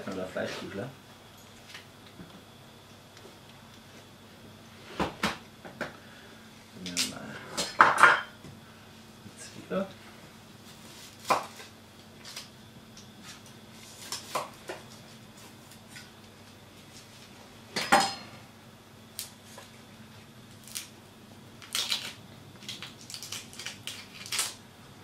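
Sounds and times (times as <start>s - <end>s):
onion skin crackling: 10.7s - 12.5s, 20.5s - 21.0s, 21.6s - 24.6s.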